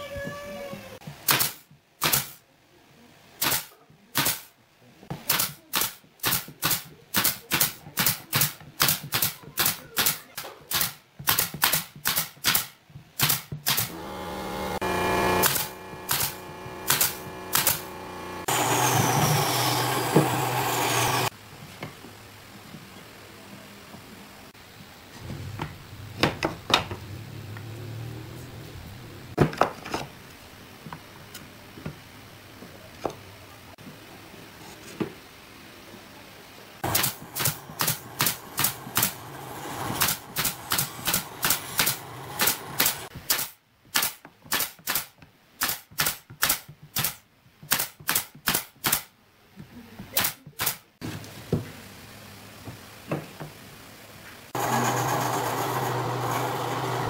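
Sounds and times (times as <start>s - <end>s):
nail gun shots: 1.2s - 2.4s, 3.4s - 4.5s, 5.2s - 14.0s, 15.4s - 17.9s, 36.8s - 39.2s, 40.0s - 49.1s, 50.2s - 50.8s
steady machine hum: 13.9s - 21.3s.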